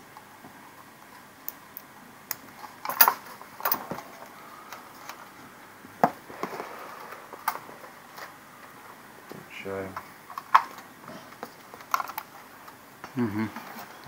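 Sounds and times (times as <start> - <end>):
small parts clicking and knocking: 1.4 - 4.1.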